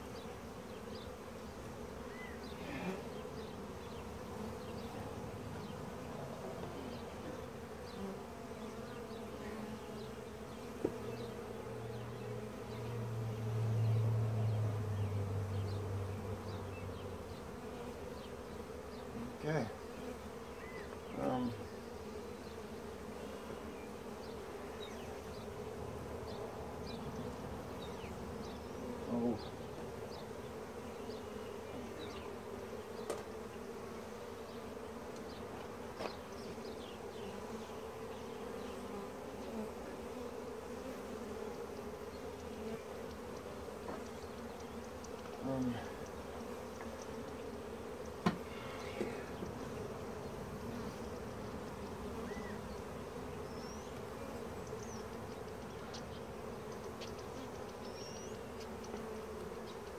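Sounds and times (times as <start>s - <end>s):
honeybees buzzing: 0.0s - 59.9s
knocks on wooden hive parts: 33.0s - 33.3s, 48.2s - 49.5s.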